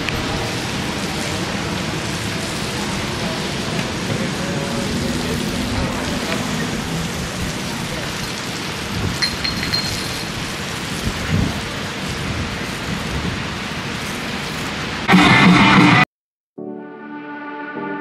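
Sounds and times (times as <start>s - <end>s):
wind buffeting microphone: 0.0s - 13.9s.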